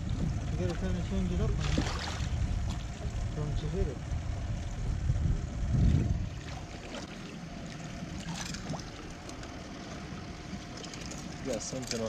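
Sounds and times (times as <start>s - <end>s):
low rumble: 0.0s - 11.3s
water splashing and trickling: 1.6s - 3.2s, 6.2s - 12.0s.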